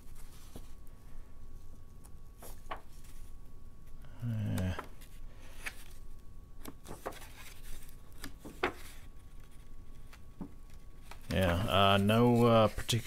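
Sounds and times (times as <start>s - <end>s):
paper pages turning: 6.6s - 13.0s.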